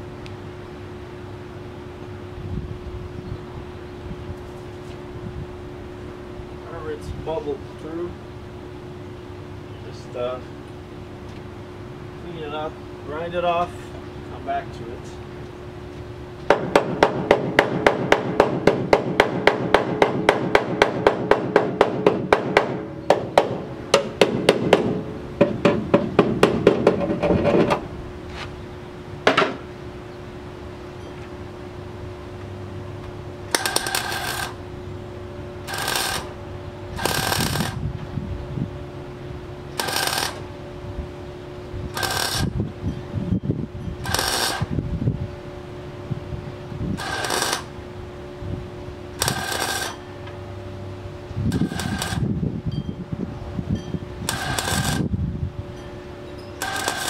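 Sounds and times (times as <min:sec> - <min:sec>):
steady hum: 0:00.0 - 0:57.0
welder arc popping: 0:33.5 - 0:34.6, 0:35.6 - 0:36.4, 0:37.0 - 0:38.1, 0:39.8 - 0:40.5, 0:41.9 - 0:42.6, 0:44.0 - 0:44.7, 0:47.0 - 0:47.8, 0:49.2 - 0:50.0, 0:51.5 - 0:52.3, 0:54.3 - 0:55.1, 0:56.6 - 0:57.0.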